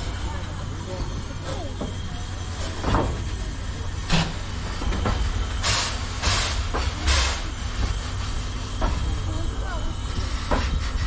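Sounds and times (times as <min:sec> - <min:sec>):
steam train rumbling: 0:00.0 - 0:11.0
steam hissing bursts: 0:03.6 - 0:09.0.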